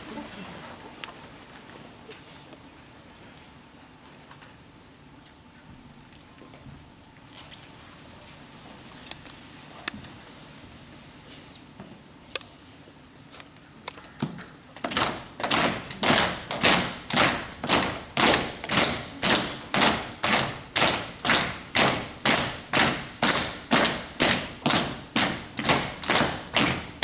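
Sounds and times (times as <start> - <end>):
steady beat of sharp thumps: 15.0 - 27.0.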